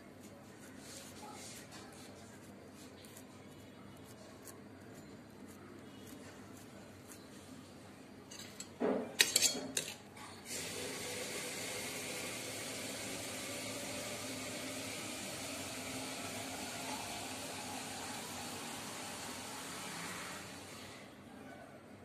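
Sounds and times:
spoon clattering on steel bowls: 8.3 - 10.1.

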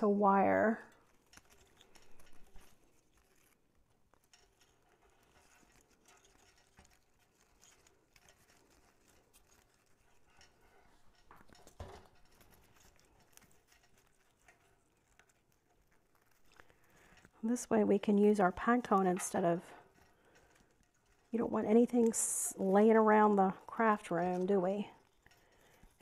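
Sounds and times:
faint rustling and crackles: 0.0 - 26.0.

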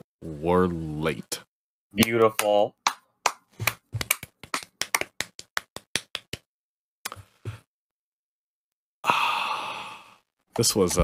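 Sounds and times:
long breathy exhale: 9.0 - 10.2.

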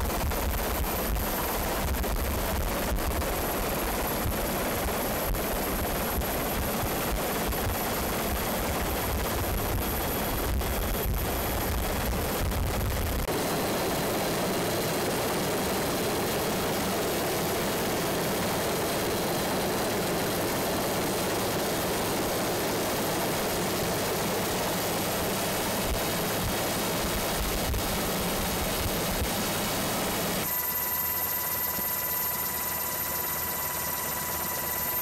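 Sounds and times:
aircraft engine noise: 0.0 - 32.1
faint high whine: 27.2 - 35.0.

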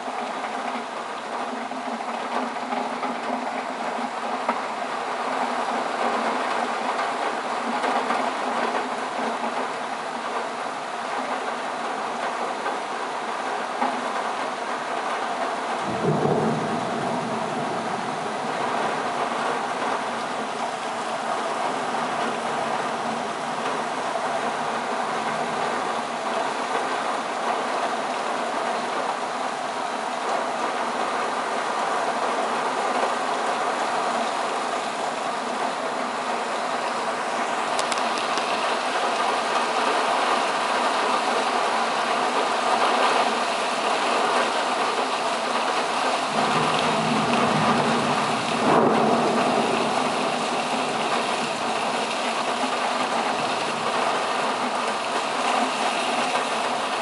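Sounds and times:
heavy rain falling: 0.0 - 57.0
low rumble of thunder: 15.8 - 27.9, 46.3 - 54.8.

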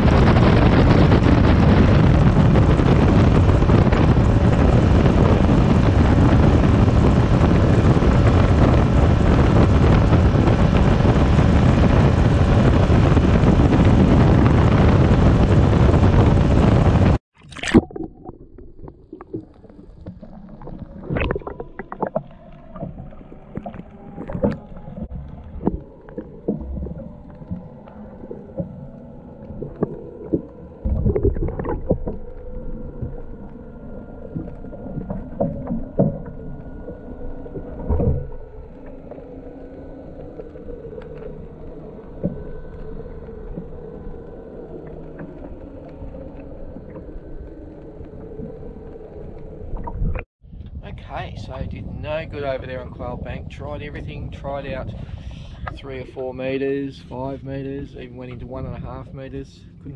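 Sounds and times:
faint steady hum: 0.0 - 59.9
underwater water rumble: 0.0 - 59.9.

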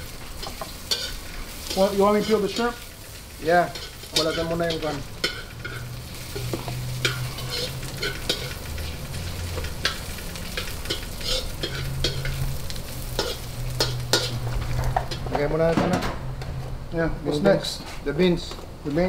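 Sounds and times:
onion and garlic sizzling in a wok: 0.0 - 15.4
metal ladle scraping a pan: 0.3 - 2.8, 3.8 - 15.3.

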